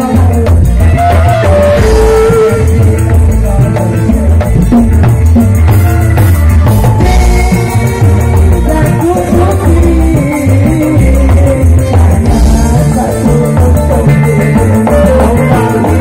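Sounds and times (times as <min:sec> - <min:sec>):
electric lead guitar: 0:00.0 - 0:16.0
fast percussion rhythm: 0:00.0 - 0:16.0
heavy bass line: 0:00.0 - 0:16.0
live band music: 0:00.0 - 0:16.0.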